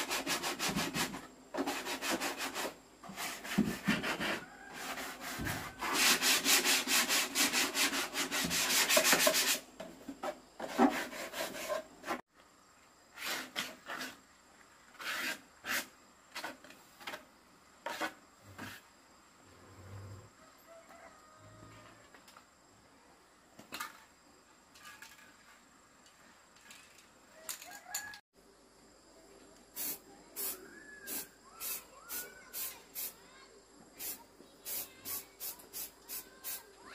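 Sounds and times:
hand sanding wood: 0.0s - 9.7s, 10.6s - 12.2s, 15.0s - 15.9s.

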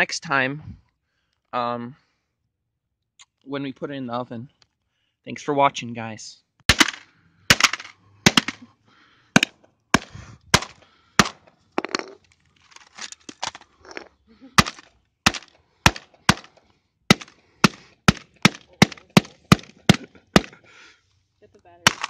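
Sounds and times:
metal bar striking broken laptop: 6.7s - 8.6s
crunching debris: 6.7s - 8.7s, 9.4s - 20.6s.

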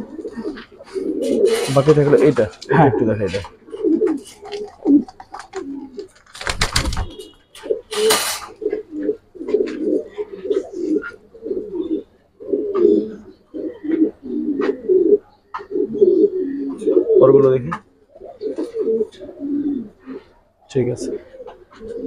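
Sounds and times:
pigeons cooing: 0.0s - 22.0s.

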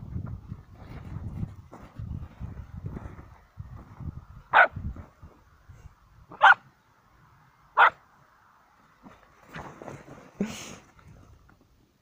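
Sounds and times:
footsteps in snow: 0.7s - 4.1s
puppy barking: 4.5s - 4.8s, 6.4s - 6.6s, 7.8s - 8.0s.

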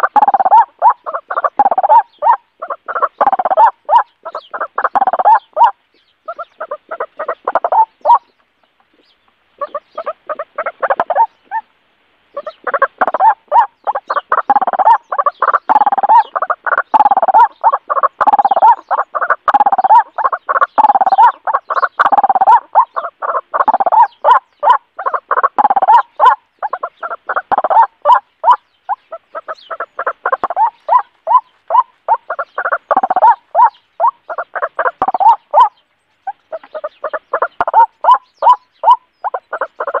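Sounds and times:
bird calls through small speaker: 25.0s - 40.0s.

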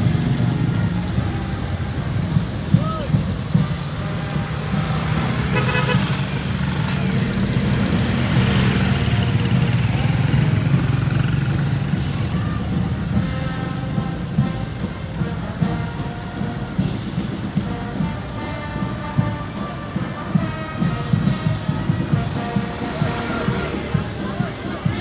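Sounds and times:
vehicle engines in traffic: 0.0s - 25.0s
car horn toot: 5.4s - 6.3s.

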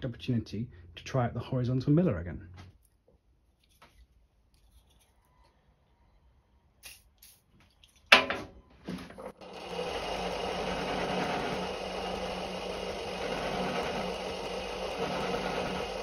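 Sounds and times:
milling machine cutting metal: 9.4s - 16.0s.

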